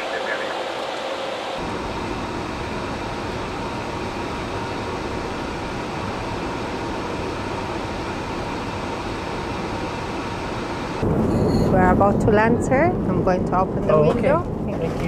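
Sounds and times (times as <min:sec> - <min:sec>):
rush of airflow and air conditioning: 0:00.0 - 0:15.0.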